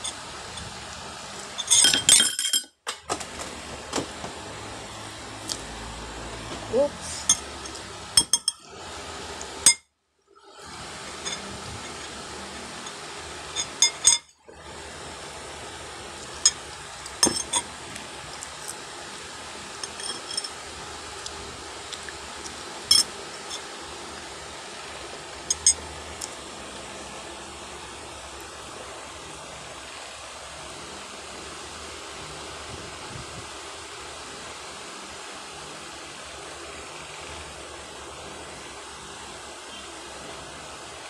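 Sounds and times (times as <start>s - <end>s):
cutlery clinking against dishes: 1.6s - 2.8s.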